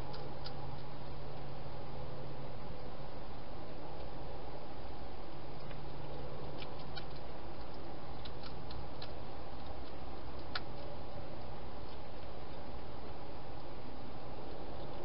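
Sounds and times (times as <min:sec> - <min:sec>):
hedgehog chewing clicks: 0:00.0 - 0:01.5, 0:05.6 - 0:13.7.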